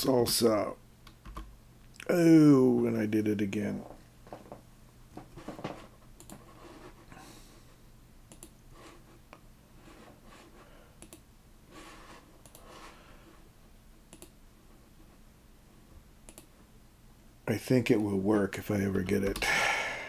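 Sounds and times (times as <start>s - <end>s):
low steady hum: 0.0s - 20.0s
mouse and keyboard clicks: 8.3s - 8.6s, 14.1s - 14.4s, 16.3s - 16.5s.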